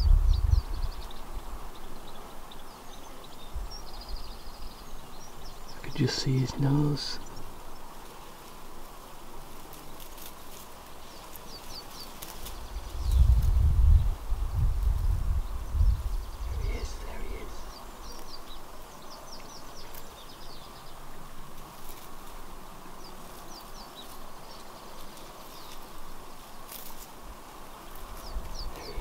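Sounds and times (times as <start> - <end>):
low rumble on microphone: 0.0 - 1.1, 12.6 - 17.8
faint outdoor noise: 0.0 - 29.0
small birds chirping: 0.0 - 29.0.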